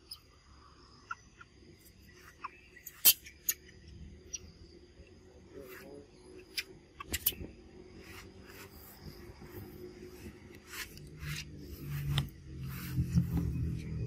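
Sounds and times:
low hum: 0:00.0 - 0:14.0
rubbing and scraping on camera: 0:05.6 - 0:06.0, 0:08.0 - 0:14.0.

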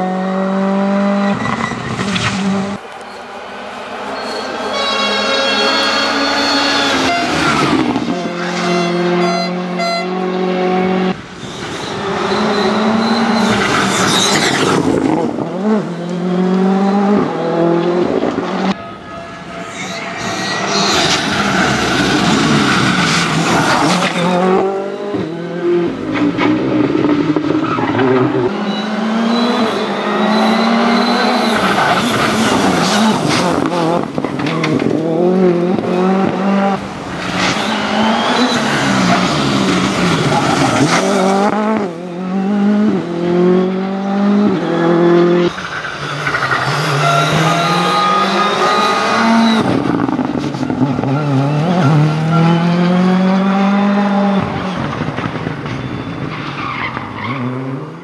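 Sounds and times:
rally car engine revving: 0:00.0 - 0:02.8, 0:05.5 - 0:18.8, 0:20.4 - 0:58.0
tyre squeal: 0:04.1 - 0:10.2, 0:11.4 - 0:14.8, 0:18.8 - 0:25.6, 0:27.5 - 0:33.7, 0:37.3 - 0:41.3, 0:44.5 - 0:52.8.

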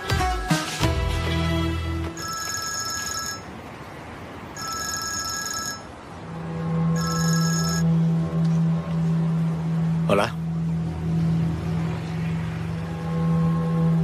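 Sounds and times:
background music: 0:00.0 - 0:02.2, 0:06.0 - 0:14.0
smartphone ringtone: 0:02.2 - 0:03.5, 0:04.6 - 0:05.9, 0:06.9 - 0:07.9.

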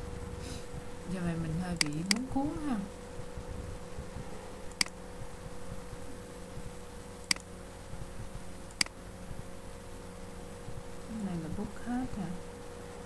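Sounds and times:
steady low hum: 0:00.0 - 0:13.0
computer mouse clicks: 0:04.7 - 0:05.0, 0:07.2 - 0:07.5, 0:08.7 - 0:09.0.

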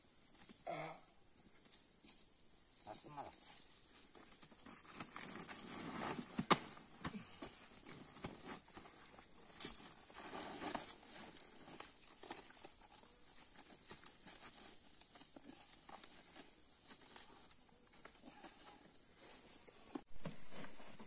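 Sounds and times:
high insect hum: 0:00.0 - 0:21.0.

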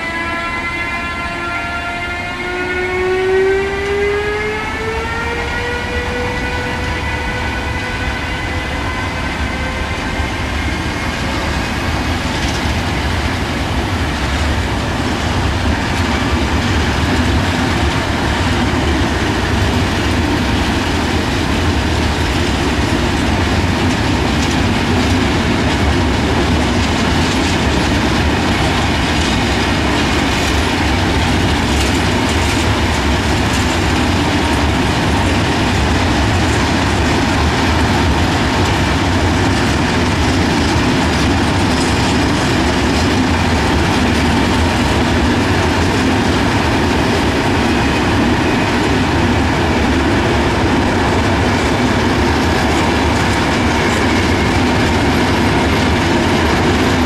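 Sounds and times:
freight train rolling past: 0:00.0 - 0:57.0
wheels clacking over rail joints: 0:10.7 - 0:57.0.

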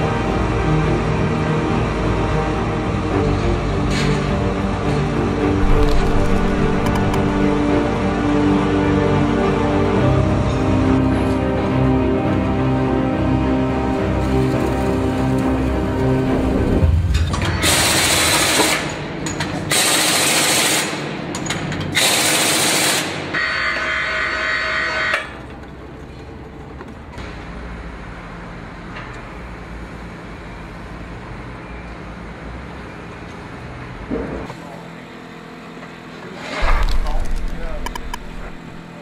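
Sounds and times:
mechanical whine: 0:03.1 - 0:09.4, 0:36.4 - 0:39.0
low steady hum: 0:04.5 - 0:10.6, 0:36.6 - 0:39.0
machinery hissing blasts: 0:05.4 - 0:08.0.

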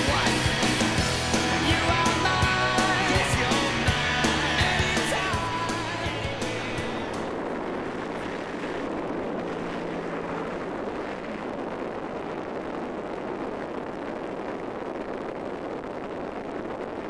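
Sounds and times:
plane engine noise: 0:00.0 - 0:17.0
wind rushing on microphone: 0:05.1 - 0:17.0.

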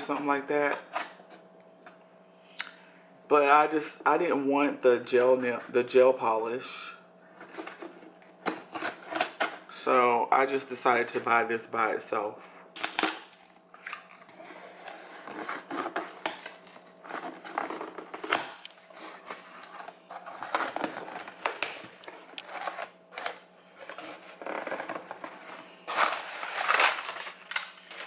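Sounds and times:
packing paper rustling: 0:12.8 - 0:28.0.

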